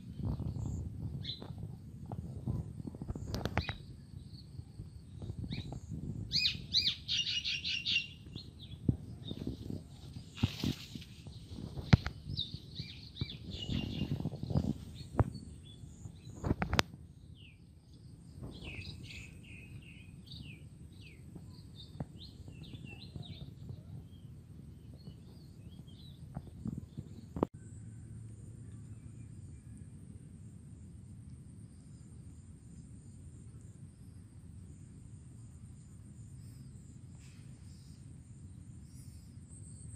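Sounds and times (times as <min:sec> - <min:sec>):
small birds chirping: 0:00.0 - 0:27.5
rustling: 0:09.3 - 0:12.2.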